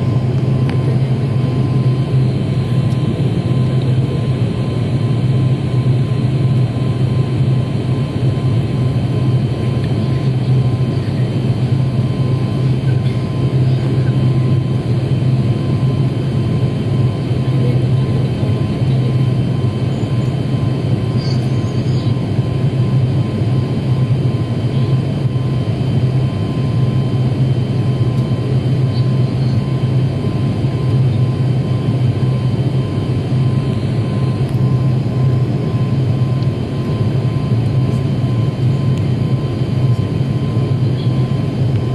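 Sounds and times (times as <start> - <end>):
airliner cabin engine drone: 0.0 - 41.9
thin steady whine: 0.0 - 41.9.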